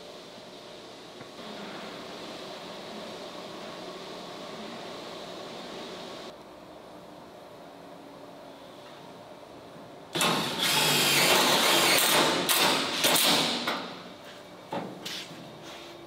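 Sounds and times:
grinder on sheet metal: 0:10.2 - 0:12.3.

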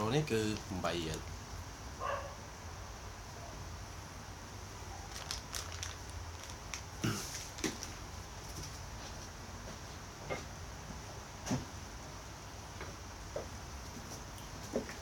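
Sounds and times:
low steady hum: 0:00.0 - 0:15.0
faint clicks and rustles: 0:05.1 - 0:09.4.

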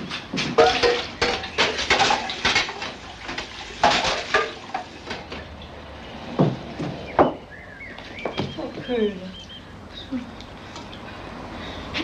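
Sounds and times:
pot clattering against sink: 0:00.4 - 0:05.5
tap water running into pot: 0:00.6 - 0:05.6.

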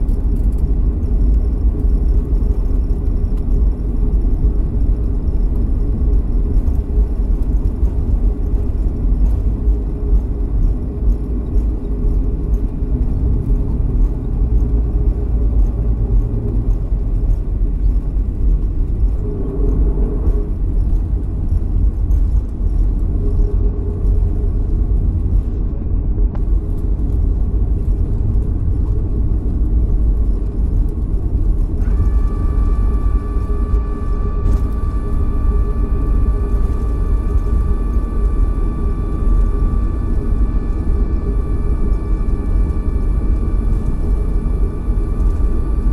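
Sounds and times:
airplane cabin low rumble: 0:00.0 - 0:45.9
high whine: 0:00.0 - 0:45.9.

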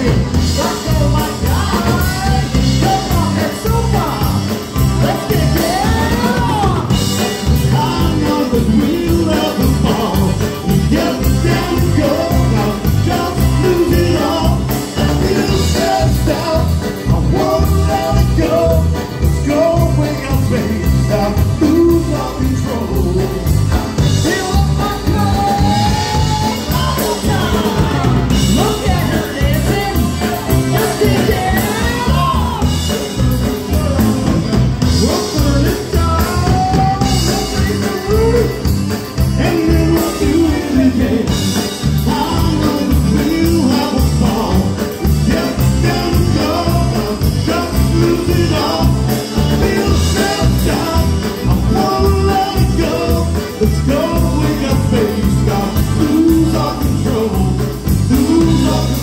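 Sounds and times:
person singing: 0:00.0 - 0:59.0
polka band playing: 0:00.0 - 0:59.0.

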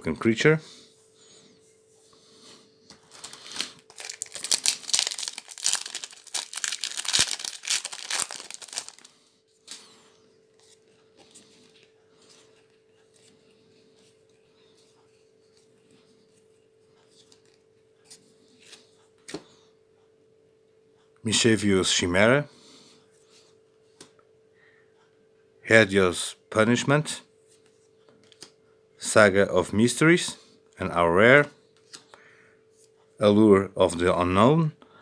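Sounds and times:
faint card handling: 0:02.9 - 0:19.4
foil wrapper tearing and crinkling: 0:03.1 - 0:09.1.

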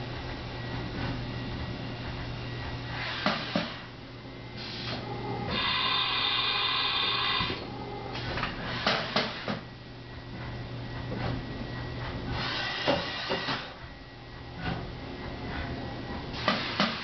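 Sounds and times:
machine high whine: 0:01.4 - 0:14.3.

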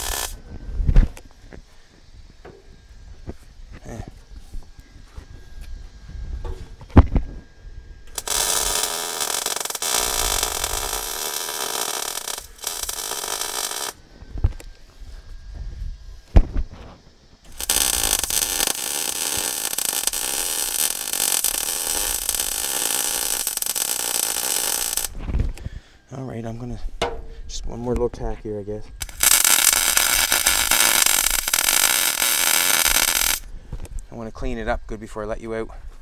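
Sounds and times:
electric welder hissing: 0:00.0 - 0:00.5, 0:08.0 - 0:14.6, 0:17.4 - 0:25.2, 0:29.0 - 0:33.5.

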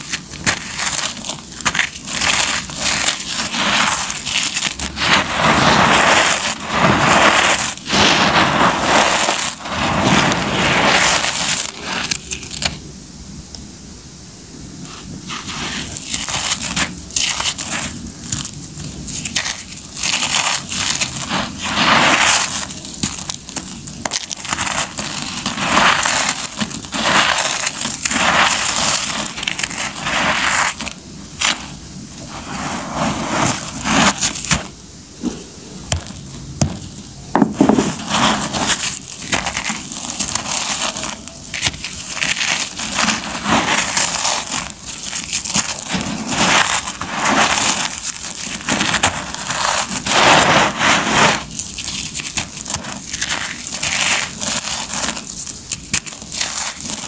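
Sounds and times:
concrete lumps crunching: 0:00.0 - 0:12.8, 0:15.3 - 0:35.3, 0:35.9 - 0:57.0.

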